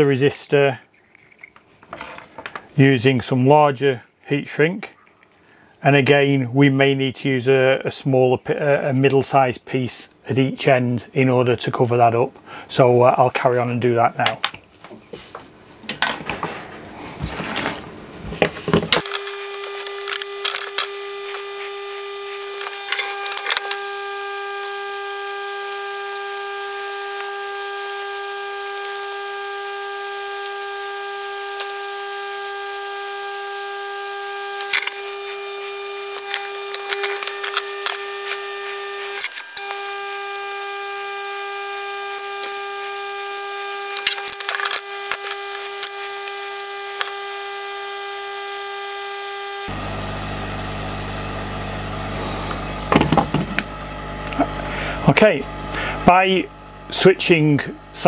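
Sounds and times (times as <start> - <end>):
parts handled on workbench: 1.0 - 2.8, 52.5 - 53.9
heat gun blowing: 19.0 - 49.8.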